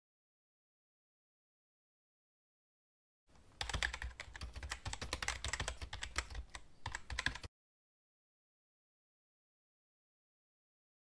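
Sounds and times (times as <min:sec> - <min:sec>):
fast typing on keyboard: 0:03.6 - 0:07.5.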